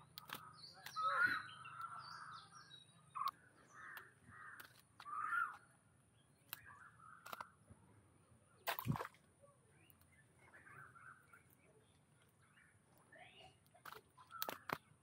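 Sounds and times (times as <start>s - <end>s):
birds harsh calls: 0.0s - 5.8s
sharp clicks: 0.1s - 1.1s, 6.4s - 7.5s, 13.7s - 15.0s.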